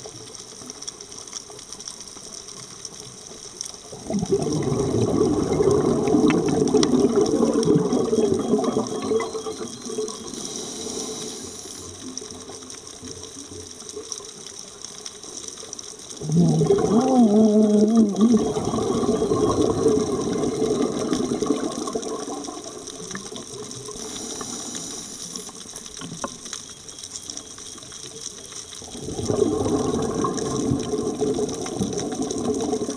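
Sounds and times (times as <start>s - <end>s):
underwater bubbling exhalations: 3.9s - 11.8s, 16.1s - 25.6s, 28.8s - 32.9s
faint hiss of inhalation: 10.3s - 12.0s, 24.0s - 25.6s.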